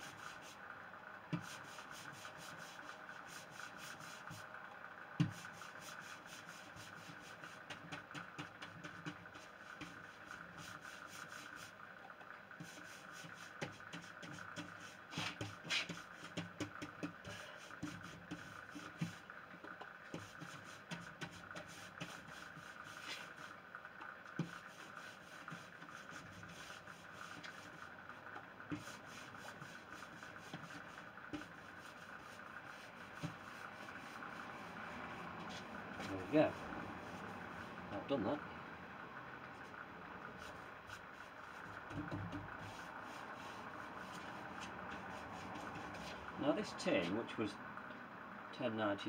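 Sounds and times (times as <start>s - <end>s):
pad scrubbing wood: 0.0s - 0.6s, 1.3s - 4.5s, 5.2s - 11.8s, 12.6s - 23.6s, 24.3s - 27.9s, 28.7s - 38.4s, 40.3s - 47.2s
light knocks and ticks: 16.3s - 20.3s.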